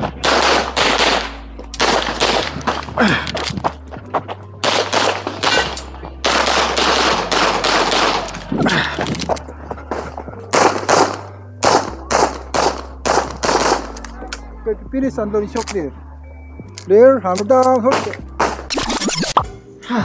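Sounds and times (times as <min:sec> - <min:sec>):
pistol firing rapid shots: 0:00.0 - 0:02.9, 0:04.6 - 0:08.5, 0:10.5 - 0:14.0, 0:17.9 - 0:18.8.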